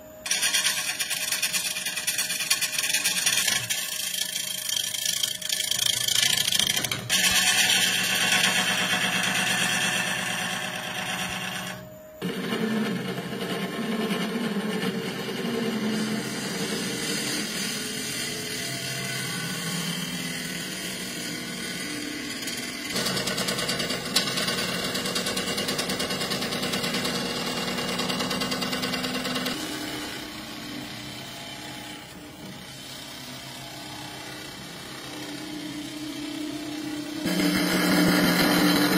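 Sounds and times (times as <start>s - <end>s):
wood lathe hum: 0.2s - 38.9s.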